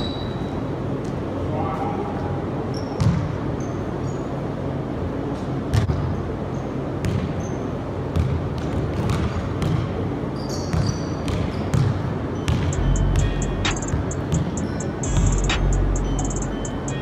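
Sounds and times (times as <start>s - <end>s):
shoe squeaks: 0.0s - 0.6s, 2.7s - 4.4s, 7.4s - 7.7s, 10.4s - 17.0s
basketball dribbling on gym floor: 7.0s - 7.4s, 8.1s - 10.0s, 10.7s - 15.7s.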